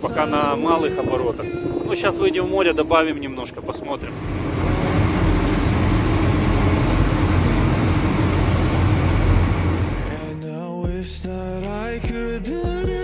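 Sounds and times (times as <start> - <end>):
music: 0.0 - 3.4, 4.6 - 13.0
wind: 0.0 - 10.2
boat diesel engines rumbling: 0.0 - 10.3
water noise: 0.0 - 10.4.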